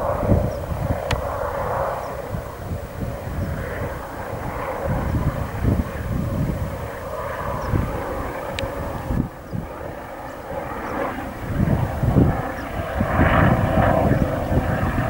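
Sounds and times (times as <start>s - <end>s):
helicopter rotor and engine: 0.0s - 15.0s
wind buffeting microphone: 0.0s - 15.0s.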